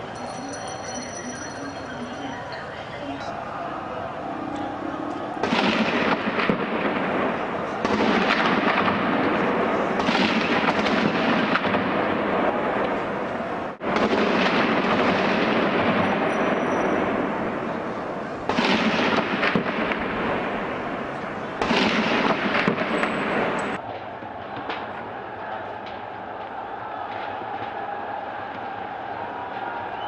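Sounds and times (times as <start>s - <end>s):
crowd noise: 0.0s - 30.0s
crackling and banging: 13.8s - 29.9s.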